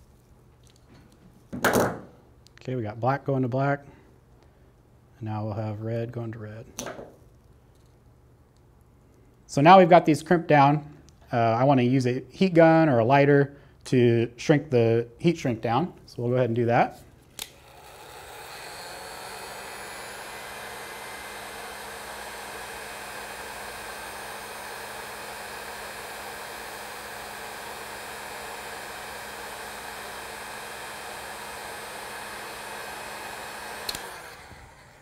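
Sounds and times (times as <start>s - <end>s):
heat gun switch click: 17.4s - 17.6s, 33.8s - 34.4s
heat gun running: 17.4s - 35.0s.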